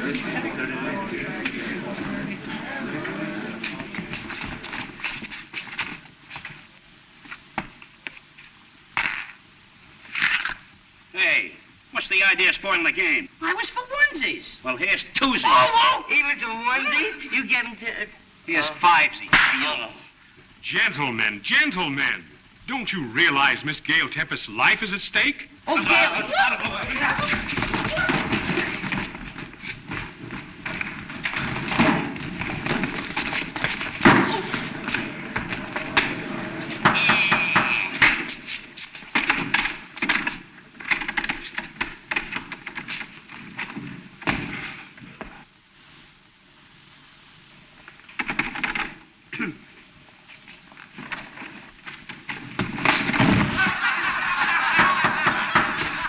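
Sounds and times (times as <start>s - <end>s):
film soundtrack hiss: 0.0s - 56.0s
jacks clattering on floor: 26.6s - 45.4s, 50.7s - 56.0s.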